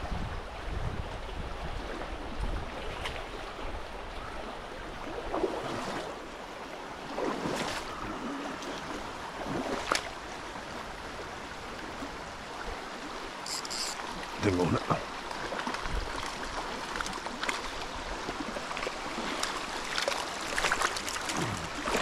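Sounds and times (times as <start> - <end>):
wind on microphone: 0.0 - 3.9
river water rushing: 0.4 - 22.0.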